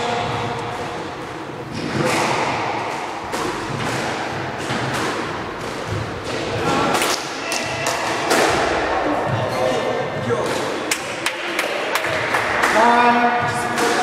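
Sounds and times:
squash ball thudding on walls: 0.0 - 9.6.

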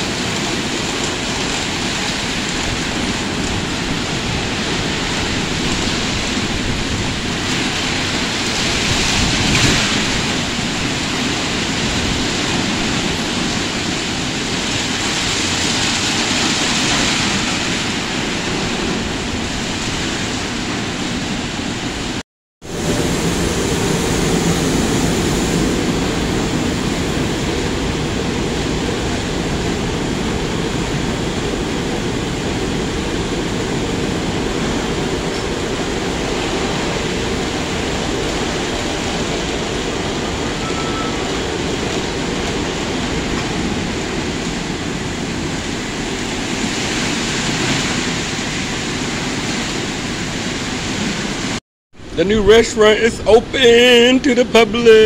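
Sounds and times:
water spraying: 22.7 - 51.6.

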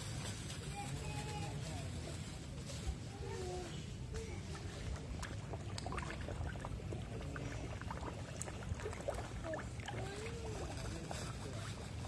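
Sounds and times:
fish splashing and slurping: 3.7 - 12.0.

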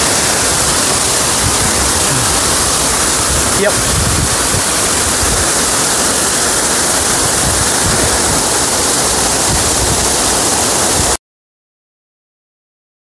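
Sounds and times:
waterfall rushing: 0.0 - 11.2.

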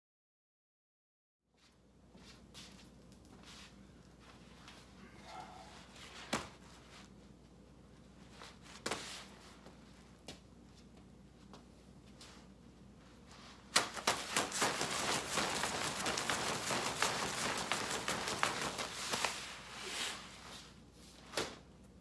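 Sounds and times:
battle rope slapping on concrete: 13.7 - 19.5.

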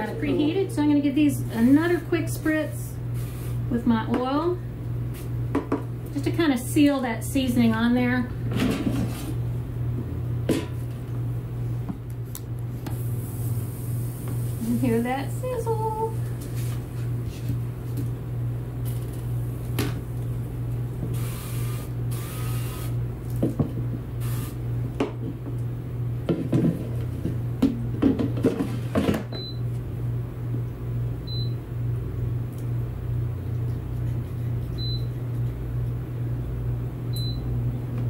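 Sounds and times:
steady low hum: 0.0 - 38.0
air fryer panel beeps: 29.4 - 29.7, 31.3 - 31.6, 34.8 - 35.1, 37.1 - 37.5.

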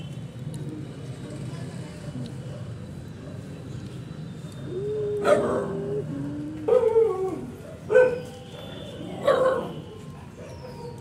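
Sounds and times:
dog whining and yelping: 5.2 - 8.3, 9.2 - 11.0.

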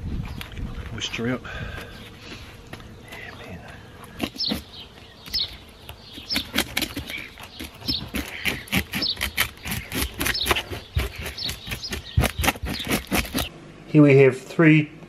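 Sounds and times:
birds chirping: 0.0 - 13.5
fish scaler scraping scales: 6.2 - 13.5.

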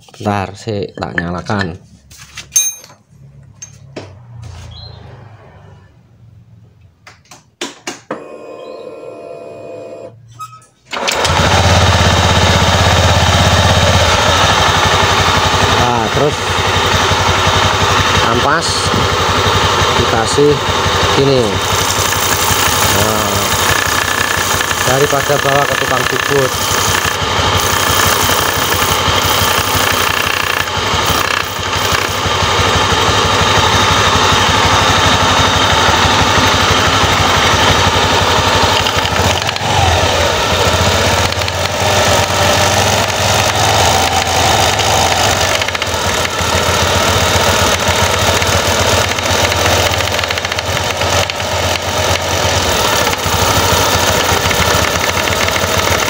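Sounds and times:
scooter engine running: 10.9 - 56.0
sandpaper grinding rub: 21.6 - 32.2.

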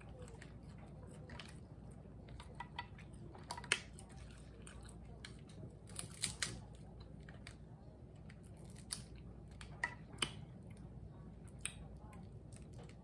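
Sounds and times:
crab shells cracking: 2.4 - 6.7, 8.5 - 10.5.

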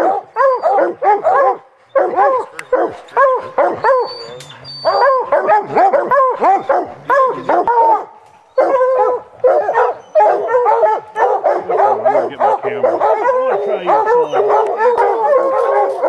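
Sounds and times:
hounds barking and baying: 0.0 - 16.0.

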